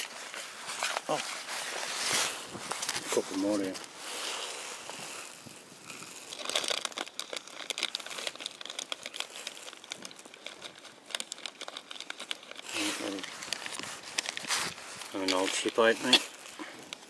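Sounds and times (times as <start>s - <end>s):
plastic crinkling handling noise: 0.0s - 17.0s
small irregular clicks: 5.9s - 17.0s.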